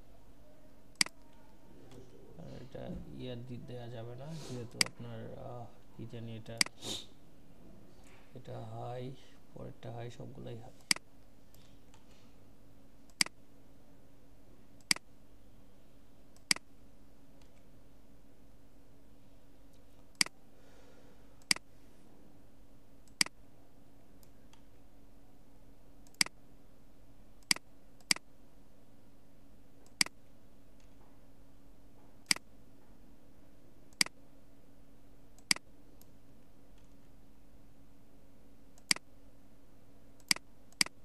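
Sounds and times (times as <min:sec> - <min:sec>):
faint steady hum: 0:00.0 - 0:41.0
computer mouse clicking: 0:00.9 - 0:01.4, 0:13.1 - 0:13.4, 0:20.1 - 0:20.3, 0:21.4 - 0:21.6, 0:23.0 - 0:23.4, 0:26.0 - 0:26.4, 0:29.8 - 0:30.2, 0:33.9 - 0:34.2, 0:35.4 - 0:36.1, 0:38.8 - 0:39.0, 0:40.2 - 0:41.0.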